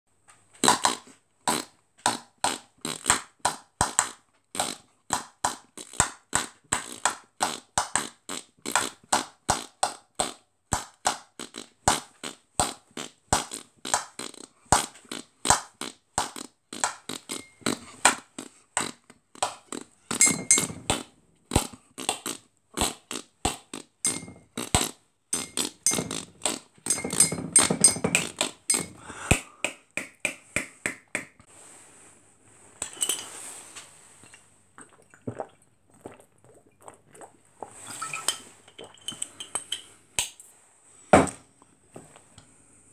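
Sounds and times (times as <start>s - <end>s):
beatboxing kick and snare: 0.6s - 31.5s
buzzy held beatbox sounds: 0.6s - 31.5s.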